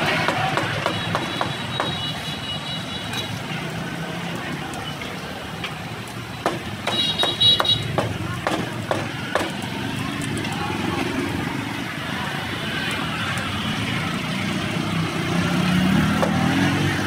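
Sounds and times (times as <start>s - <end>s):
street traffic: 0.0s - 17.0s
cleaver chopping on wooden block: 0.2s - 2.0s, 6.4s - 9.6s.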